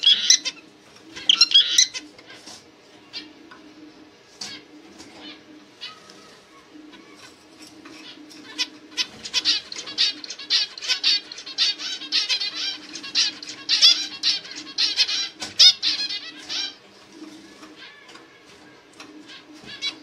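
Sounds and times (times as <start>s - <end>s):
finch singing: 0.0s - 2.4s, 5.2s - 18.2s.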